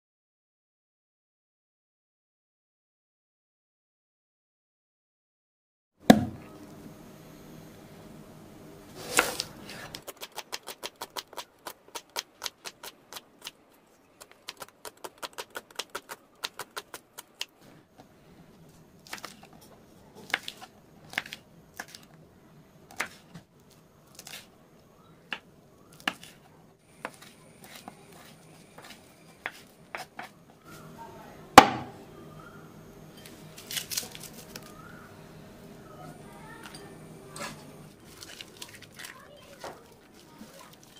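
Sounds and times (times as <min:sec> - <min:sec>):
knife chopping on wooden board: 0:06.1 - 0:06.4, 0:27.0 - 0:30.4, 0:31.6 - 0:32.0
faint steady hum: 0:06.1 - 0:10.1, 0:17.0 - 0:40.9
single loud knock: 0:31.6 - 0:32.0
rustle of sliced onion: 0:38.0 - 0:40.9.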